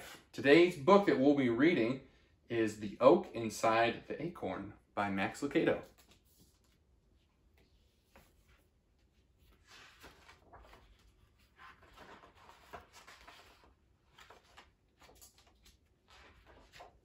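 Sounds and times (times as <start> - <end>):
book pages turning: 5.8 - 17.0.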